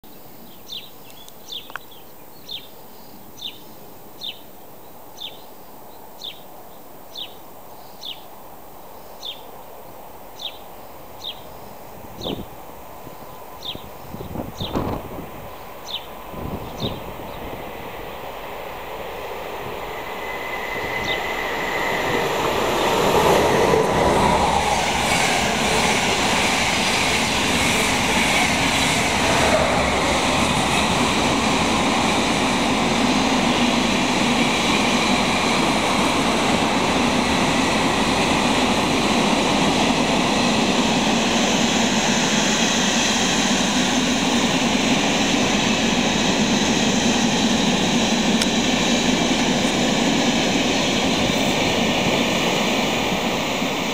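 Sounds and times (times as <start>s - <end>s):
electric locomotive passing: 8.0s - 53.9s
train wheels on rails: 11.2s - 53.9s.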